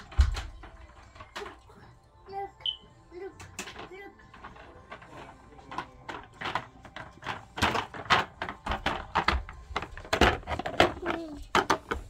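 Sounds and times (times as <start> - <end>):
plastic toy clicks and knocks: 3.4 - 12.0.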